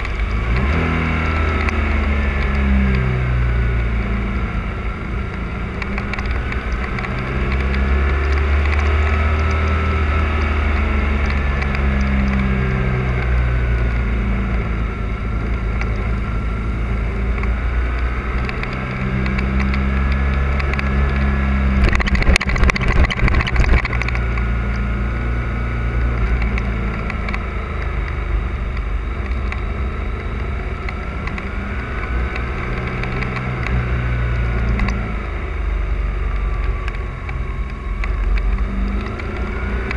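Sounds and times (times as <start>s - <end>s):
motorcycle engine running: 0.0s - 39.9s
rough crackling on microphone: 17.3s - 24.8s.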